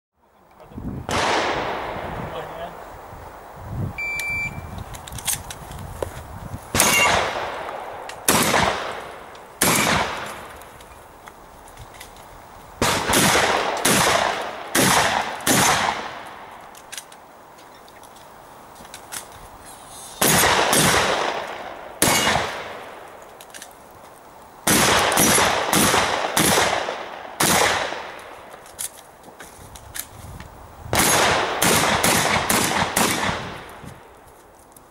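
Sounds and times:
shotgun blasts: 1.1 - 2.1, 6.7 - 10.4, 12.8 - 16.5, 20.2 - 23.0, 24.6 - 28.2, 30.9 - 33.7.

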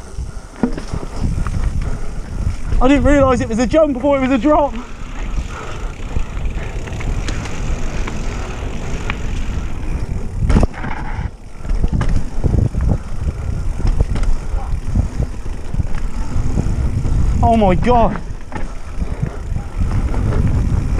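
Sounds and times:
bike tyres rumbling on dirt: 0.0 - 20.9
wind on microphone: 0.0 - 20.9
bike knocking over bumps: 0.5 - 1.9, 5.9 - 17.2, 17.9 - 20.9.

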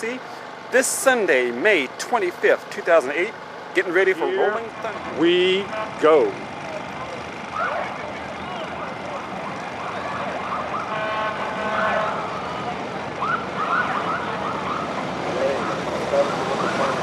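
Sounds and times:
motorcycle engines: 0.0 - 17.0
police sirens whooping: 6.3 - 17.0
steady siren tone: 7.5 - 17.0.

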